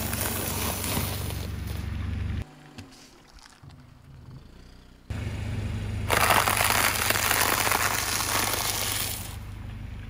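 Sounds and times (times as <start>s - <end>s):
car tyre rolling: 0.0s - 10.0s
brittle snacks crunching: 6.1s - 9.4s.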